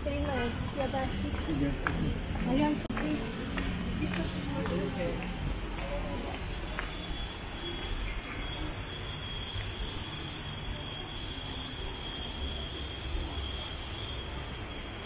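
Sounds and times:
low outdoor background noise: 0.0s - 15.0s
high-pitched insect drone: 6.4s - 15.0s.

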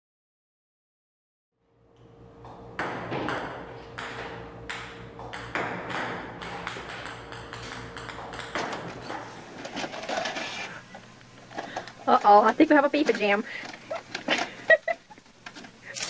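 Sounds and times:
steady hum: 1.6s - 16.0s
ping-pong balls clicking on table: 2.5s - 9.3s.

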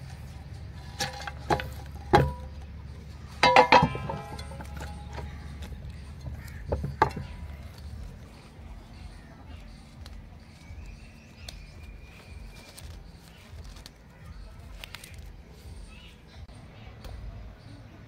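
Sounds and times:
cloth bundle handling: 9.5s - 15.7s.

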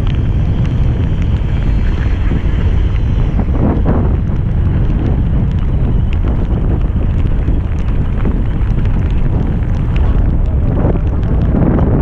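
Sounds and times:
faint ticks: 0.0s - 12.0s
wind buffeting microphone: 0.0s - 12.0s.

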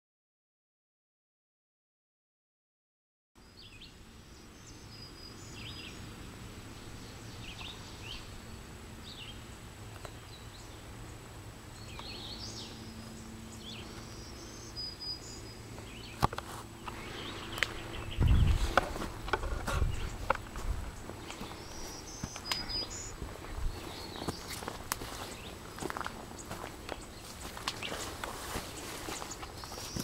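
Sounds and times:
birds singing: 3.4s - 30.0s
footsteps on trail: 15.7s - 30.0s.

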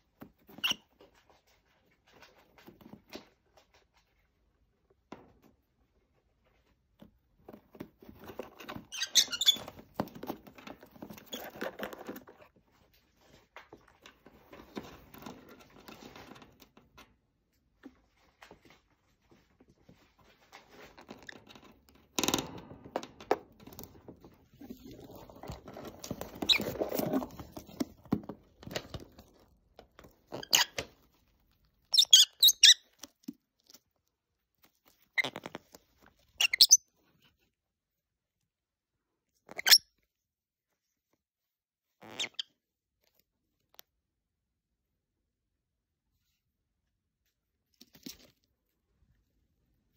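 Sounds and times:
birds chirping high squeaks: 8.9s - 9.7s, 31.9s - 32.9s, 36.4s - 36.8s.

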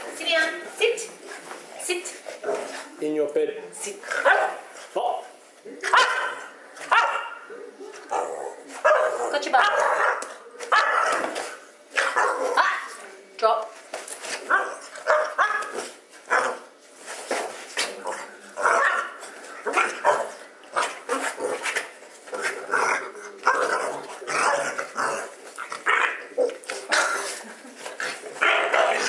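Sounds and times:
dog barking and growling: 4.1s - 4.7s, 5.8s - 13.0s, 14.5s - 16.7s, 17.8s - 27.4s, 28.1s - 29.0s.

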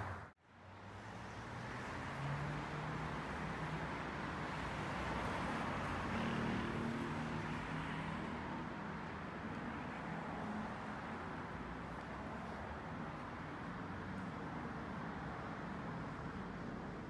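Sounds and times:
road noise hum: 0.0s - 17.0s
vehicles driving past: 0.0s - 17.0s.

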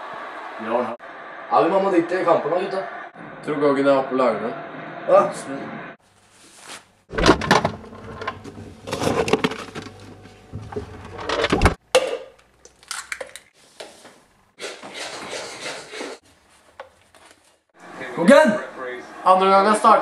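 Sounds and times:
refrigerator items rustling: 6.2s - 11.8s.

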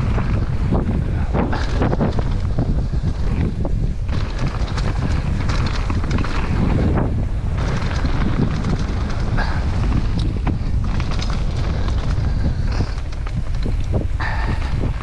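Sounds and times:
bike rattling and knocking: 0.0s - 15.0s
tyres on leafy dirt trail: 0.0s - 15.0s
wind buffeting microphone: 0.0s - 15.0s.

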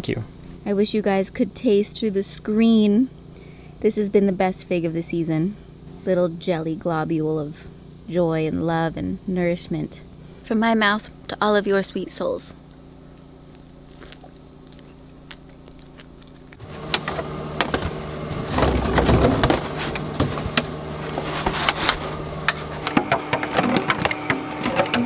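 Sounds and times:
plastic bottles crinkling and knocking: 16.9s - 22.0s.

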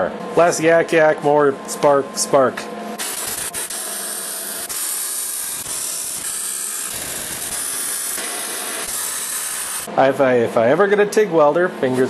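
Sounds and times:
welding arc crackling hiss: 3.0s - 9.9s.

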